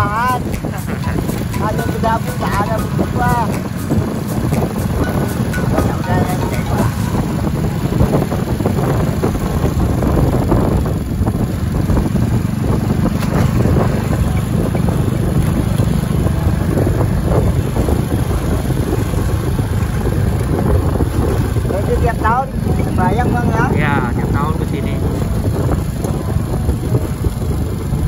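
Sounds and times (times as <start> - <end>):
motorcycle engine running: 0.0 - 28.0
wind buffeting microphone: 0.0 - 28.0
rattles and knocks from rough road: 6.9 - 28.0.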